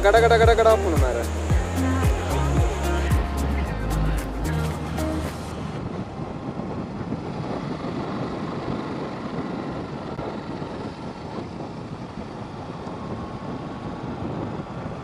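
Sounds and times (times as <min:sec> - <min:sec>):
motorcycle engine cruising: 0:00.0 - 0:15.0
wind on microphone: 0:00.0 - 0:15.0.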